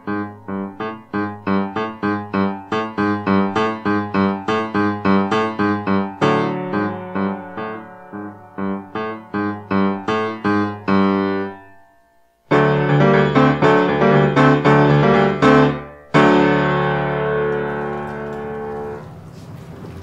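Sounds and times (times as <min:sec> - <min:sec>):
piano repeated notes and chords: 0:00.0 - 0:19.4.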